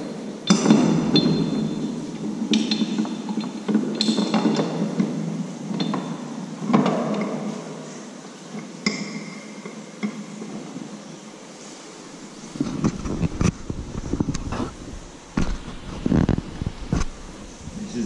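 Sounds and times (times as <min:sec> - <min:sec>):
sharp metal clanks: 0:00.4 - 0:05.1.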